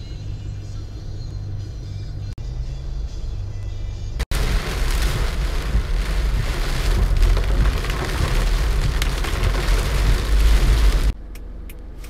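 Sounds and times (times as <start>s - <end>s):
road and engine rumble: 0.0s - 12.0s
rain drumming on windshield: 4.3s - 11.2s.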